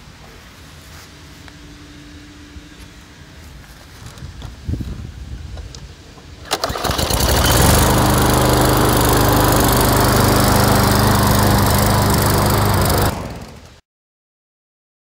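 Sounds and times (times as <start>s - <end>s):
lawn mower engine running: 6.4s - 13.8s.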